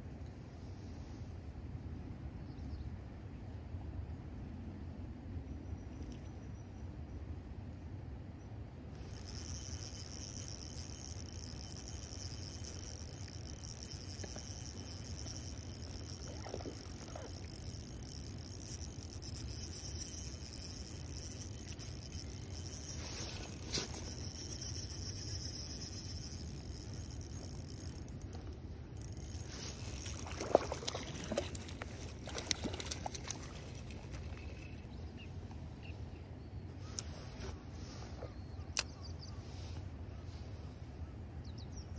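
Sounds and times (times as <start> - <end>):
fish splashing: 9.0 - 34.7
fishing reel whirring: 9.0 - 34.7.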